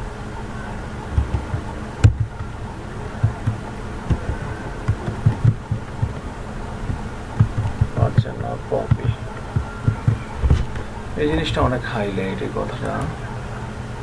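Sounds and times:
steady hum: 0.0 - 14.0
keyboard typing: 1.0 - 11.0.

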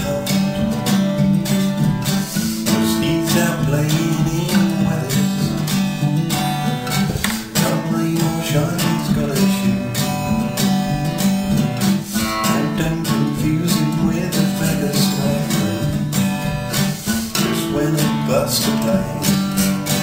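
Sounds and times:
acoustic guitar strumming chords: 0.0 - 20.0.

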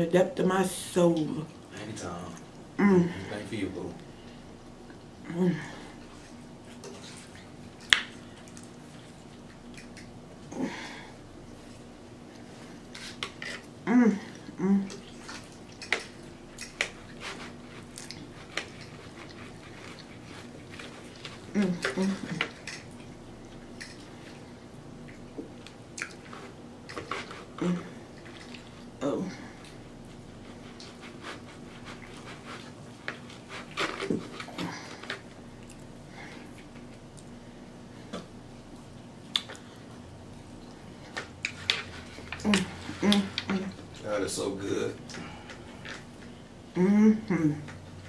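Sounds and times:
person humming mm: 5.2 - 5.9, 13.8 - 15.0, 27.6 - 28.0, 42.4 - 43.8, 46.7 - 47.8
chewing sounds: 6.0 - 10.5, 11.4 - 37.4, 38.0 - 44.0.

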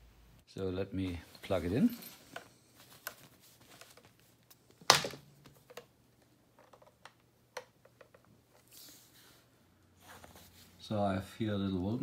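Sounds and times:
cable clicks and rustles: 1.3 - 8.8.

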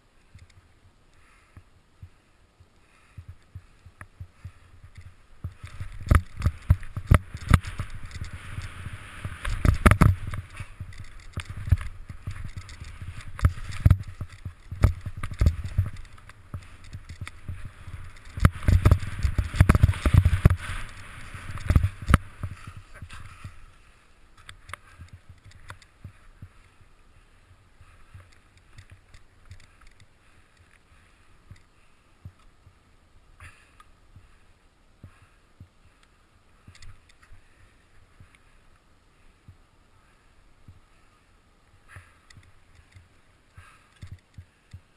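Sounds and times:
skis hissing through powder snow: 7.5 - 9.8, 17.4 - 24.2.

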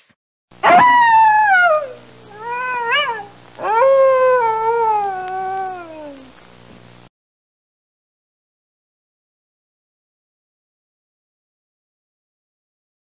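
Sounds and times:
fox calling: 0.6 - 6.2.

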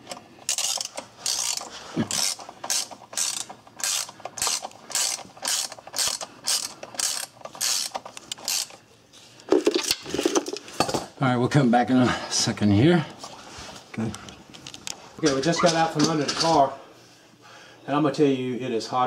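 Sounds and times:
hand ratchet clicking: 0.0 - 8.8.

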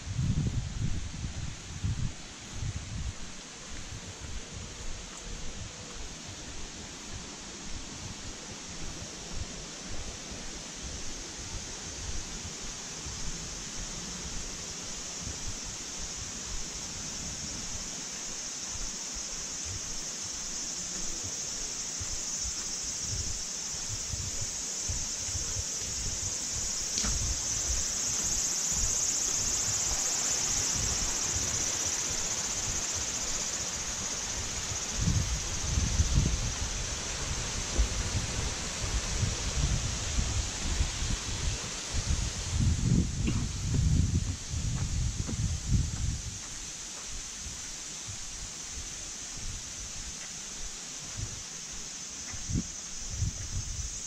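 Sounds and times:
insects droning: 0.0 - 54.0
low thuds from walking: 1.9 - 30.2, 37.2 - 39.8, 42.0 - 53.8.

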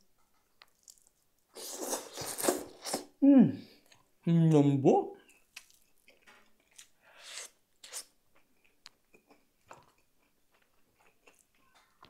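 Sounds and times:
person chewing: 0.6 - 3.2, 5.3 - 12.0.

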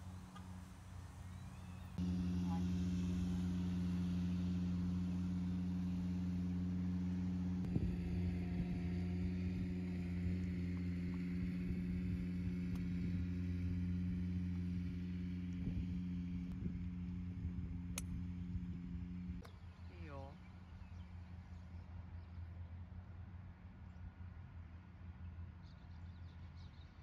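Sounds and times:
low mechanical hum: 0.0 - 27.0.

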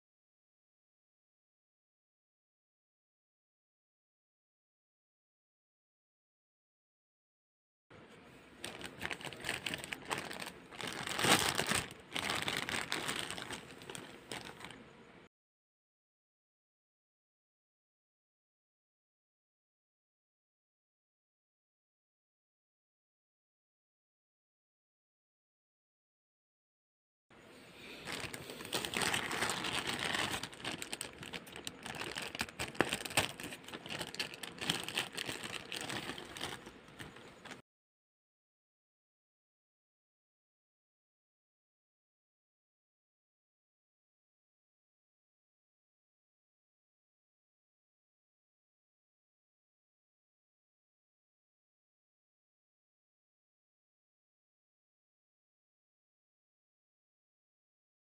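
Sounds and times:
plastic wrapping crinkling: 8.6 - 14.8, 27.8 - 37.6.

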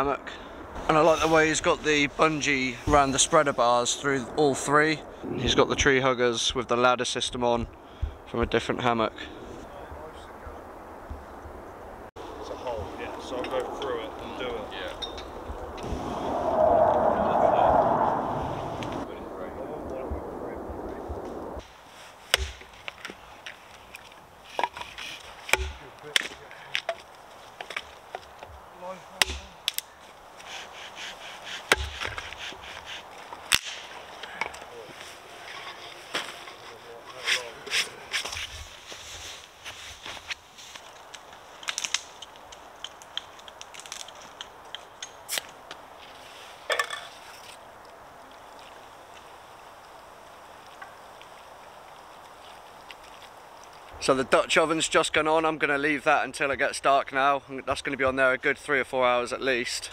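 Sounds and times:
wood fire crackling and popping: 18.8 - 35.2, 38.0 - 46.2, 47.2 - 54.4
axe chopping wood: 22.3 - 22.7, 25.5 - 26.4, 29.2 - 29.8, 31.7 - 32.2.

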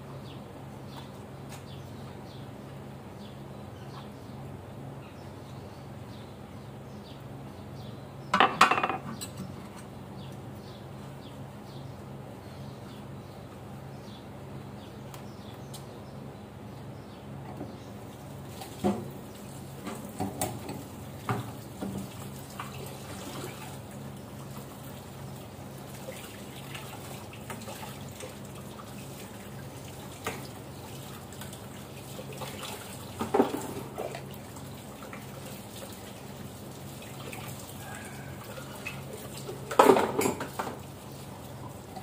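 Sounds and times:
dishes clattering: 8.3 - 9.4, 39.7 - 40.7
dishes clinking: 8.4 - 9.4.

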